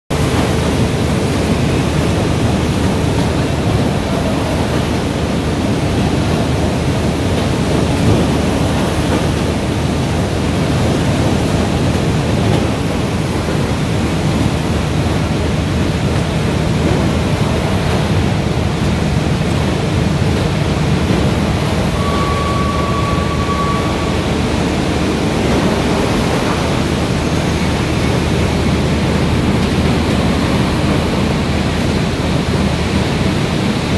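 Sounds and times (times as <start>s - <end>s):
machine rollers and belts running: 0.1s - 33.9s
short steady tone: 21.9s - 25.8s.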